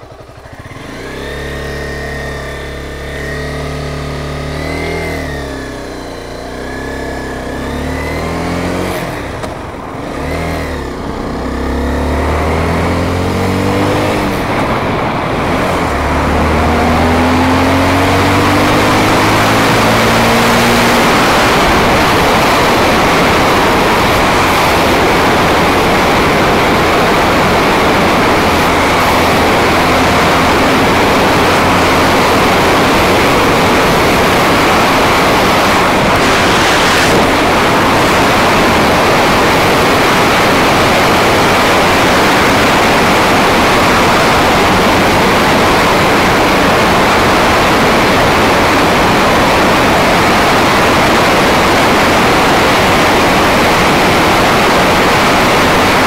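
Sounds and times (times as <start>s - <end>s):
motorcycle engine running: 0.0s - 56.0s
wind rush over microphone: 18.8s - 56.0s.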